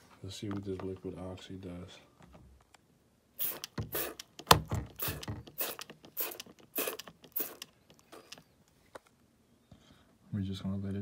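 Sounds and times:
spray bottle squirts: 0:03.4 - 0:04.3, 0:04.9 - 0:08.5
spray trigger click: 0:03.4 - 0:04.4.

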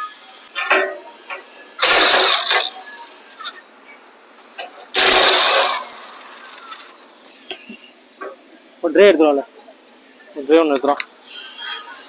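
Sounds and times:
electric impact wrench running: 0:04.9 - 0:06.6.

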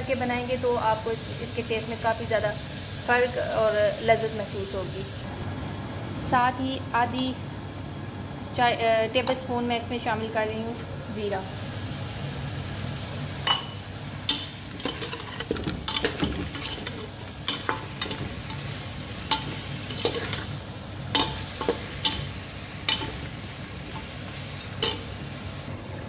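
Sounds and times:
meat sizzling in a pot: 0:00.1 - 0:05.3, 0:11.4 - 0:25.7
metal spoon scraping and clinking pot: 0:13.5 - 0:18.7, 0:19.3 - 0:20.5, 0:21.2 - 0:22.3, 0:22.9 - 0:23.3, 0:24.8 - 0:25.1.

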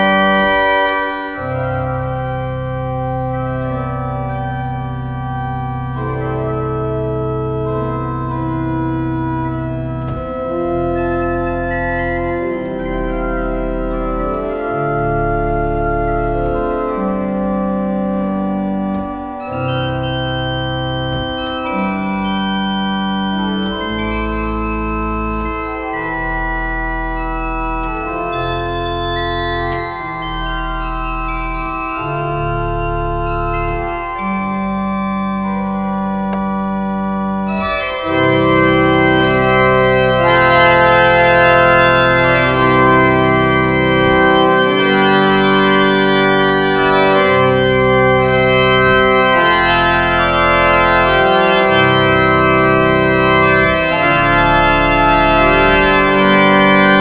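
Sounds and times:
pipe organ playing slow melody: 0:00.0 - 0:57.0.

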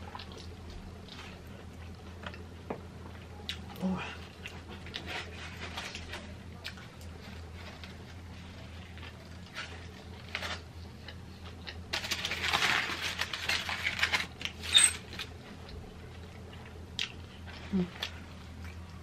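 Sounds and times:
foil wrapper crinkling: 0:11.9 - 0:15.4
chewing and mouth clicks: 0:15.6 - 0:19.0.

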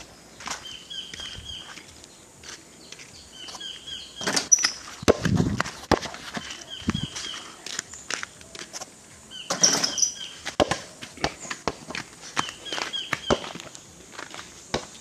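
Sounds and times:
bird chirps: 0:00.4 - 0:02.2, 0:02.8 - 0:05.0, 0:05.7 - 0:08.4, 0:09.3 - 0:10.5, 0:12.4 - 0:13.6
ball thudding on dirt: 0:04.2 - 0:07.1, 0:09.5 - 0:13.7, 0:14.7 - 0:15.0.

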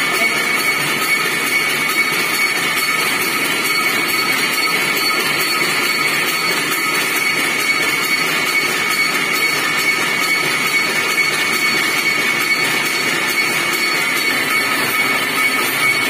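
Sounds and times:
power looms clattering: 0:00.0 - 0:16.0.

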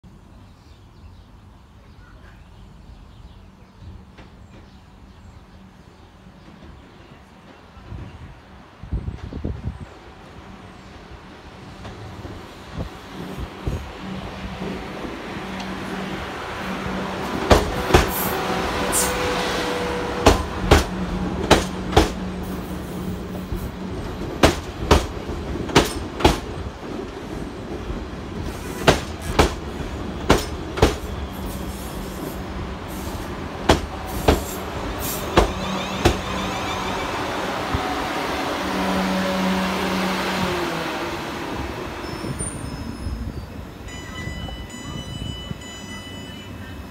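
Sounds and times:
electric train hum: 0:02.7 - 0:46.9
train wheels clacking over rail joints: 0:17.3 - 0:19.2, 0:20.2 - 0:22.6, 0:23.5 - 0:31.2, 0:33.6 - 0:36.5.

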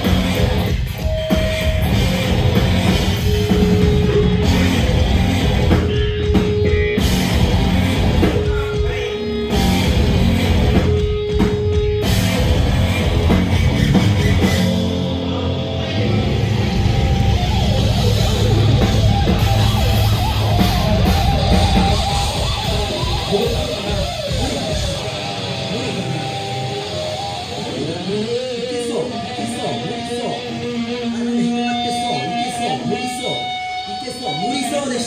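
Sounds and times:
drum kit: 0:00.0 - 0:32.7
distorted electric guitar: 0:00.0 - 0:35.0
live rock band playing: 0:00.0 - 0:35.0.

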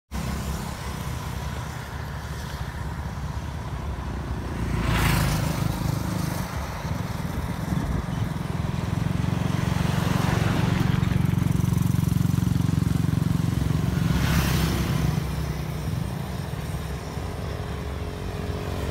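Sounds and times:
low road rumble: 0:00.1 - 0:18.9
motorbikes passing: 0:00.1 - 0:18.9.

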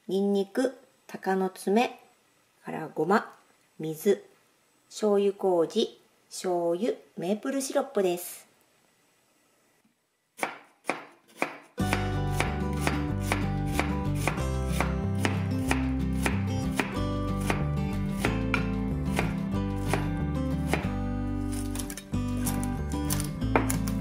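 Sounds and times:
knife chopping on wooden board: 0:10.4 - 0:20.1, 0:20.7 - 0:24.0
background music with bass: 0:11.8 - 0:24.0.

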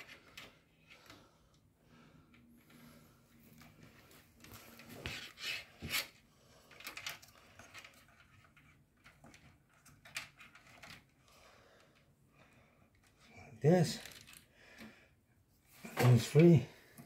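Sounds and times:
cables rustling: 0:00.0 - 0:17.0.

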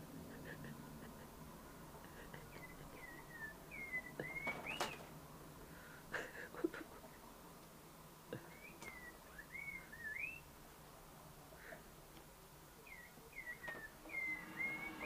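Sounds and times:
faint high whistly chirps: 0:02.6 - 0:05.1, 0:08.5 - 0:10.5, 0:12.9 - 0:15.0.

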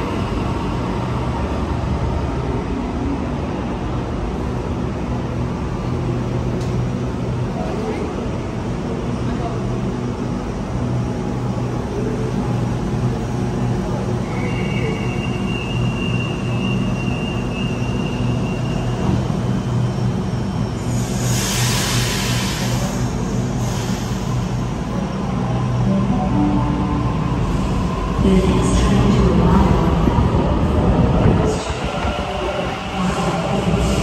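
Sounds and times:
electric train humming: 0:00.0 - 0:34.0
loud air hiss: 0:20.8 - 0:24.6.

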